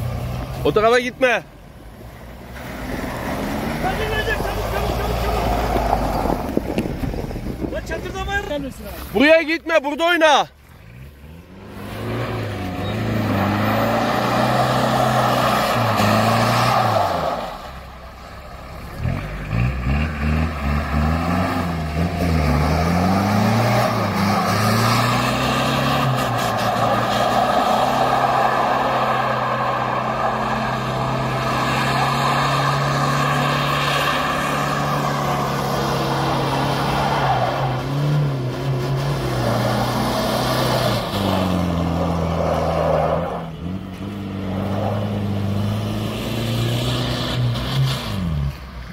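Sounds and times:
engine revving: 0:10.8 - 0:17.6, 0:18.9 - 0:48.6.

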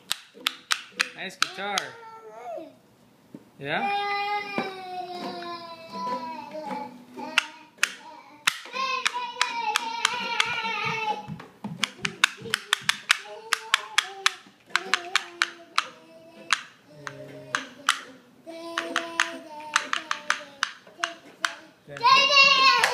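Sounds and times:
hand claps: 0:07.3 - 0:16.7, 0:18.7 - 0:22.9
person singing: 0:08.7 - 0:11.3, 0:12.0 - 0:22.9.

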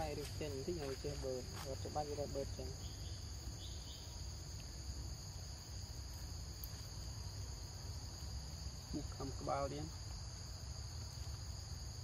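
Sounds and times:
high-pitched insect chorus: 0:00.0 - 0:12.0
faint chirps: 0:02.5 - 0:04.9.

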